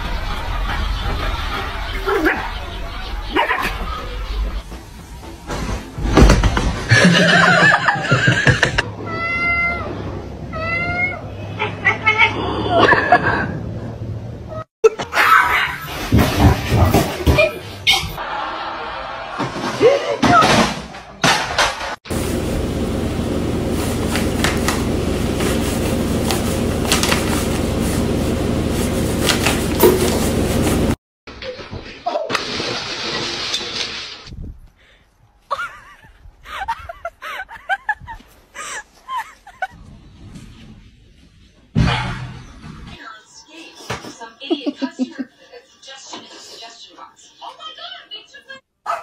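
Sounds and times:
cat meowing: 8.9s - 11.3s
low mechanical hum: 22.1s - 31.0s.

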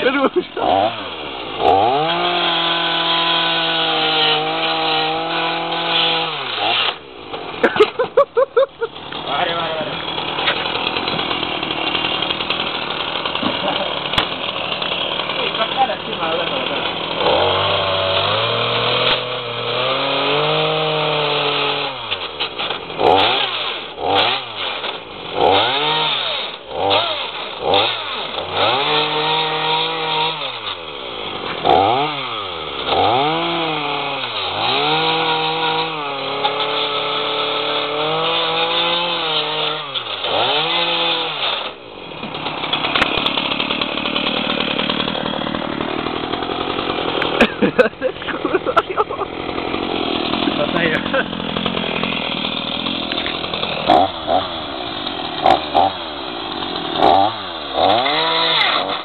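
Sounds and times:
chainsaw cutting plastic: 0.0s - 59.0s.

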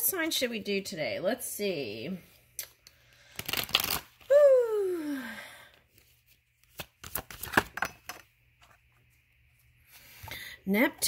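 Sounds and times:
cards riffle shuffling: 3.4s - 4.2s, 6.0s - 7.8s.

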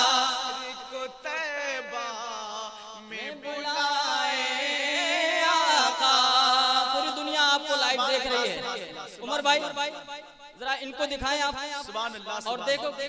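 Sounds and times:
man singing unaccompanied: 0.0s - 9.6s.

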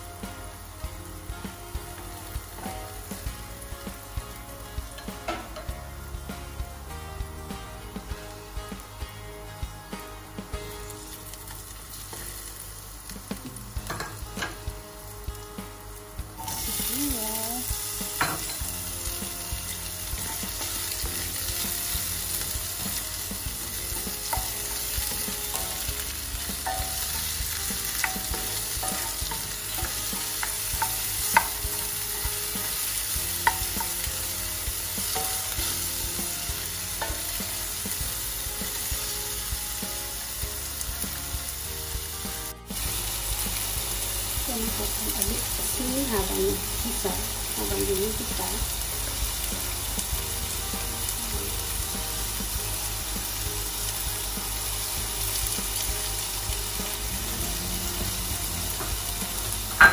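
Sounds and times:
garlic and onion sizzling in oil: 0.0s - 59.9s.

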